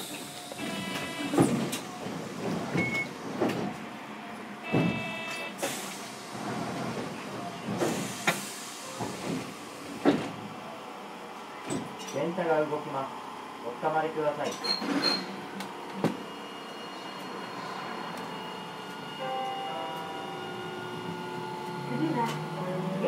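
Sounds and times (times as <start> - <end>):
tram doors knocking and clunking: 0.0 - 5.4, 6.3 - 10.6
brief beep: 4.7 - 5.5.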